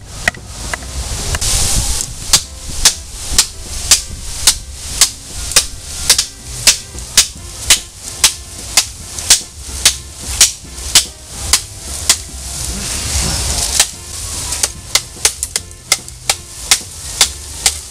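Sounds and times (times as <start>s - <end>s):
knife chopping bamboo: 2.3s - 12.4s, 13.7s - 17.9s.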